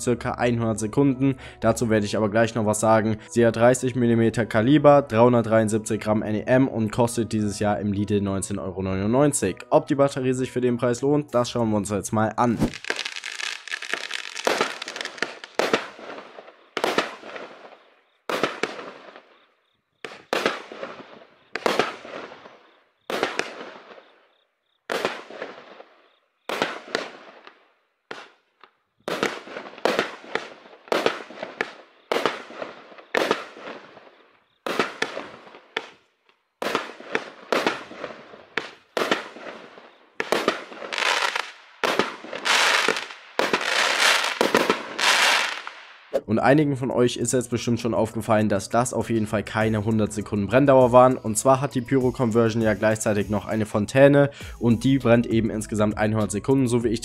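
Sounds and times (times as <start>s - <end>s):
fireworks bangs and crackle: 12.4s - 19.4s, 20.0s - 24.1s, 24.9s - 36.0s, 36.6s - 46.2s.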